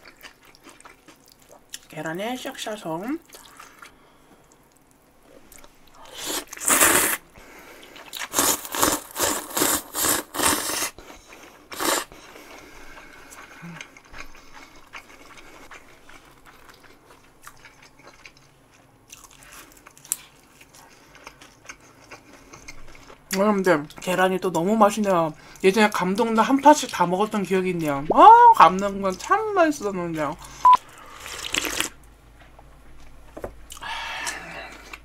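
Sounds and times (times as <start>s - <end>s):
chewing: 0.0s - 1.9s, 7.7s - 23.3s
noodles being slurped: 7.9s - 11.0s, 11.6s - 12.1s.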